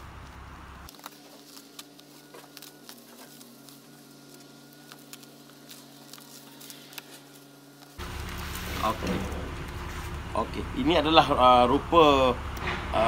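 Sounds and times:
faint steady hum: 0:00.0 - 0:12.6
plastic wrapping crackling: 0:00.8 - 0:10.3.

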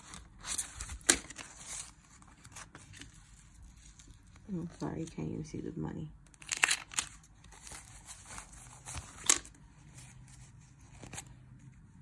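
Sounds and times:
paper banknotes rustling: 0:06.4 - 0:11.6.

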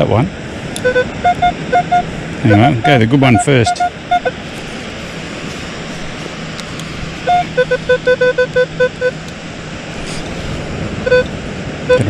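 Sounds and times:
metal detector beeps: 0:00.8 - 0:04.4, 0:07.2 - 0:09.2, 0:11.0 - 0:11.3.

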